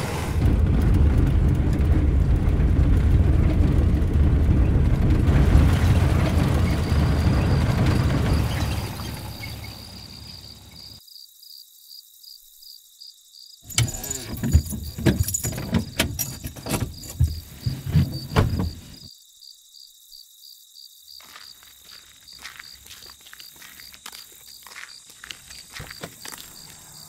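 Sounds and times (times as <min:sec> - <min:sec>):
low car rumble: 0:00.0 - 0:10.7
crickets chirping: 0:05.4 - 0:27.0
loud clunks and knocks: 0:13.7 - 0:19.0.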